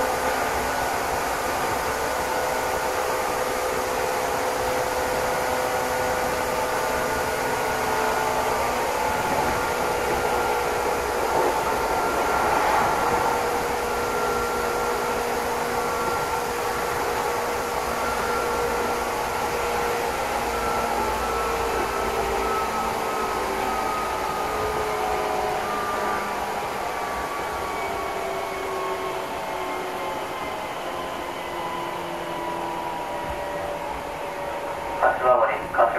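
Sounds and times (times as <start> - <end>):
train rolling noise: 0.0 - 35.9
faint whining tones: 7.9 - 35.9.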